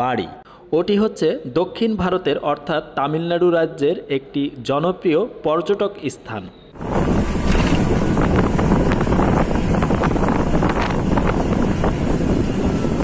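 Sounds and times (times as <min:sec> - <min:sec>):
bus engine and road noise: 0:06.8 - 0:13.0
wind rushing over microphone: 0:06.8 - 0:13.0.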